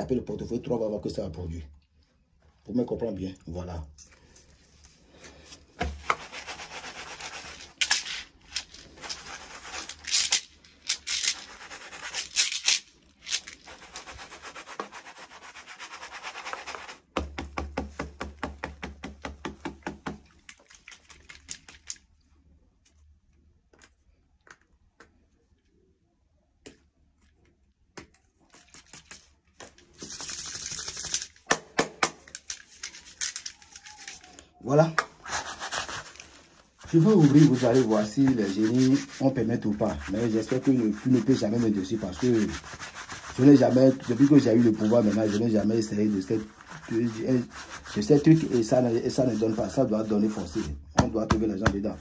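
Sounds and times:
hands rubbing briskly: 6.0s - 17.1s, 32.4s - 34.3s, 35.0s - 51.9s.

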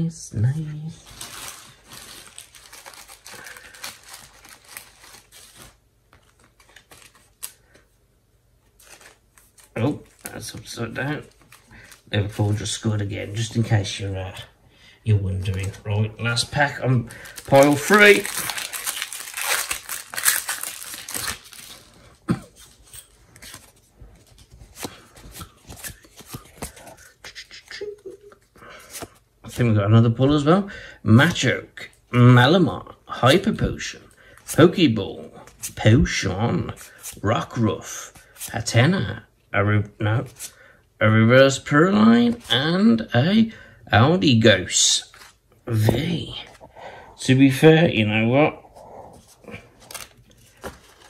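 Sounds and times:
foil wrapper crinkling: 1.0s - 7.8s, 15.4s - 27.1s, 49.5s - 51.0s
cards being handled: 1.2s - 7.9s, 8.6s - 13.6s, 15.4s - 29.7s, 49.1s - 51.0s.

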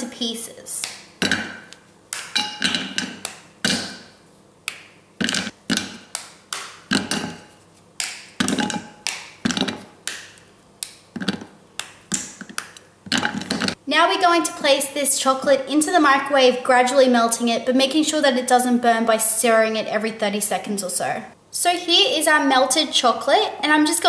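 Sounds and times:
chocolate snapping: 0.8s - 7.4s, 8.0s - 13.7s.

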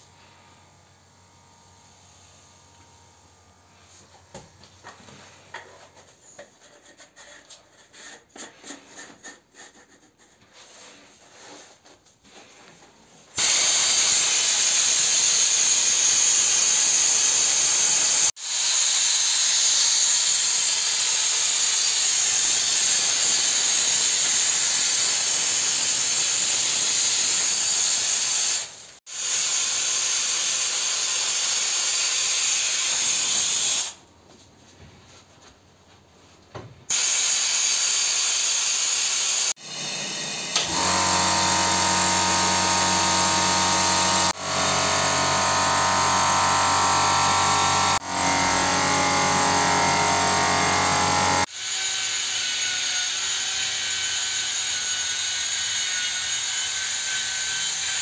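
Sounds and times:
sandblasting gun hissing: 13.4s - 34.0s, 36.9s - 44.4s.

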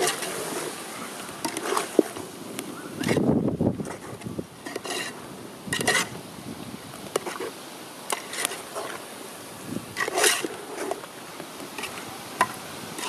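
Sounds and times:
metal spatula scraping pot: 0.0s - 0.8s, 1.4s - 2.2s, 3.0s - 6.2s, 7.1s - 9.0s, 10.0s - 11.1s
frying sizzle: 0.0s - 3.7s.

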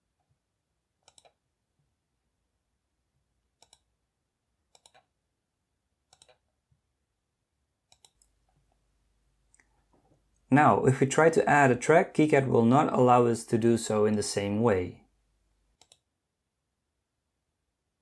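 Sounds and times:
computer mouse clicks: 1.0s - 1.4s, 3.6s - 3.9s, 4.7s - 5.1s, 6.1s - 6.5s, 7.9s - 8.8s, 15.8s - 16.1s.

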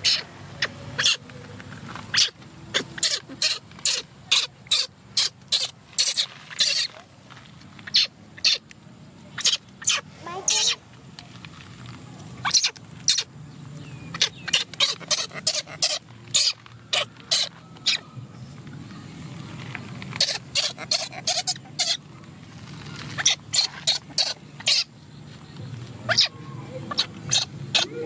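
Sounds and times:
baby monkey squeaking: 0.0s - 1.2s, 2.1s - 7.0s, 7.8s - 8.6s, 9.3s - 10.8s, 12.4s - 13.3s, 14.1s - 18.1s, 20.1s - 22.1s, 23.1s - 25.0s, 26.0s - 28.0s.

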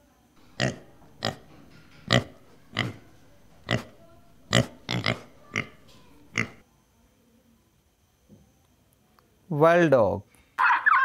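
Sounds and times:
pigs grunting: 0.4s - 6.6s.

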